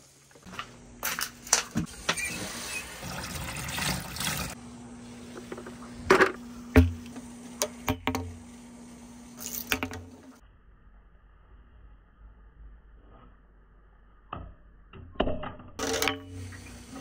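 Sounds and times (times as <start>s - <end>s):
water running from tap into hose: 3.0s - 4.6s
plastic balls and bucket knocking: 5.4s - 7.1s.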